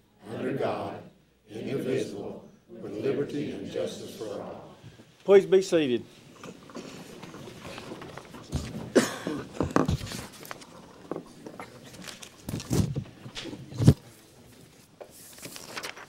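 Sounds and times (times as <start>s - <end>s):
office chairs shifting and knocking: 6.0s - 15.2s
shuffling and rustling: 6.0s - 16.0s.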